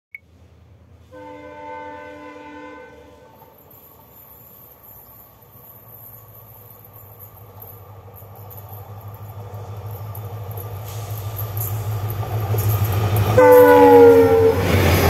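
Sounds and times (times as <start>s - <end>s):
distant locomotive horn: 1.0s - 3.6s, 13.4s - 15.0s
locomotive engine rumble: 3.0s - 15.0s.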